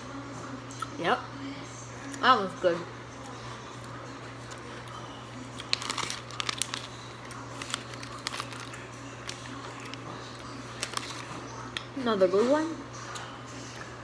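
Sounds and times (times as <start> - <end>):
plastic candy bag crinkling: 5.4 - 11.9.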